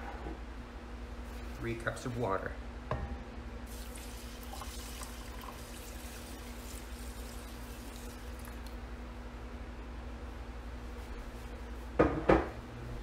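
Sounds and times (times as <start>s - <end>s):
water pouring onto rice: 3.7s - 8.8s.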